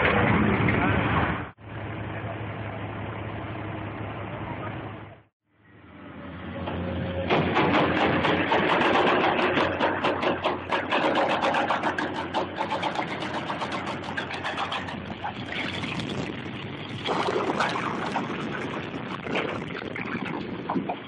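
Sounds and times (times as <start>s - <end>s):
excavator diesel engine clattering: 6.3s - 15.4s
rush of noise: 12.6s - 21.0s.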